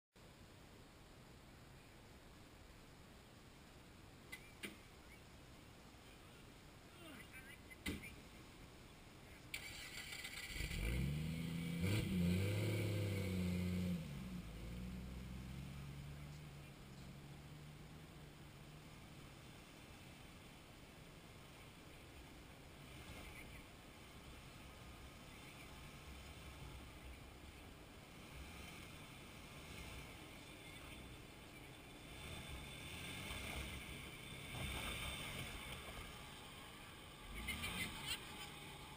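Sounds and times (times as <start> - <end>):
sharp crackles: 9.5 - 11.6
car engine revving: 9.5 - 38.9.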